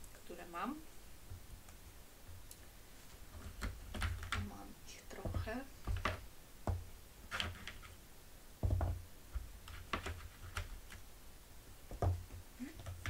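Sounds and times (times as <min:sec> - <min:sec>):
plastic jars knocking on plastic tray: 0:05.2 - 0:06.8, 0:08.6 - 0:09.0.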